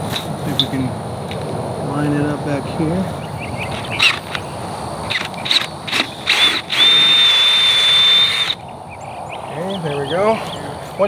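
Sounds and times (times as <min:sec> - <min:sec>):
drill bit squealing: 0:05.1 - 0:08.6
power drill boring into metal: 0:05.9 - 0:08.6.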